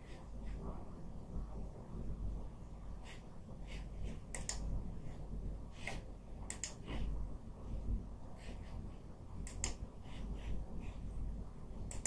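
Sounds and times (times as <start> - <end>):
low room hum: 0.0 - 12.0
computer mouse clicks: 4.3 - 4.7, 5.8 - 7.0, 9.4 - 9.8.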